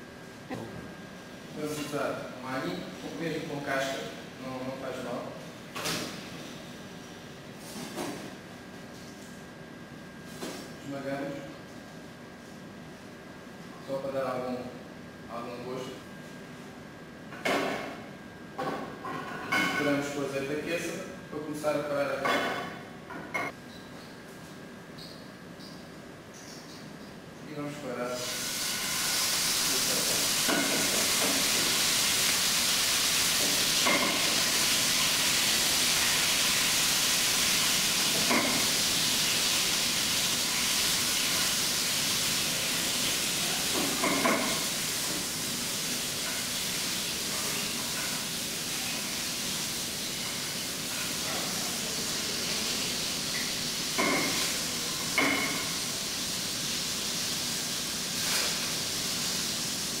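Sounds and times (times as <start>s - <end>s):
chicken sizzling in a frying pan: 28.1s - 60.0s.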